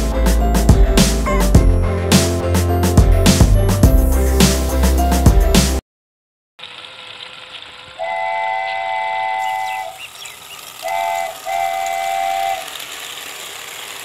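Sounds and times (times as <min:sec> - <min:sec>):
train horn blasts: 0:08.0 - 0:10.0, 0:10.8 - 0:12.7.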